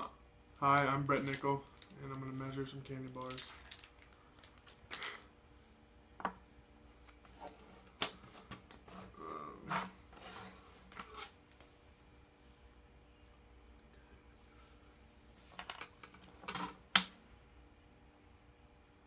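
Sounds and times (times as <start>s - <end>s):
wrapper crinkling and rustling: 0.6s - 5.3s.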